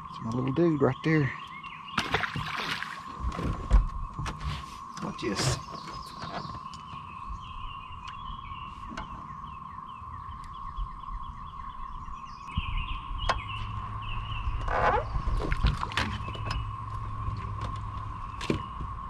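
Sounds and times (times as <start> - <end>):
cicadas droning: 0.0 - 19.0
songbird chirping: 0.0 - 19.0
low rumble: 6.9 - 19.0.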